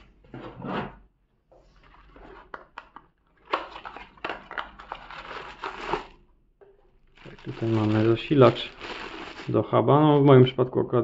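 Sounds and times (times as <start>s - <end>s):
plastic bag crinkling: 3.7s - 6.2s, 7.1s - 10.3s.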